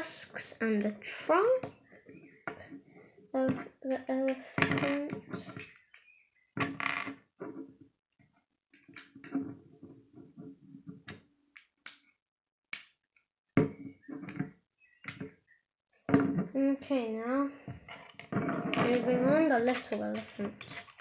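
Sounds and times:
plastic bricks snapping together: 11.1 - 13.0.

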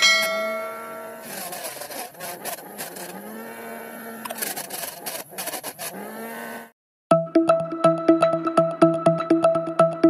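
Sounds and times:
small motor whining: 0.6 - 6.8.

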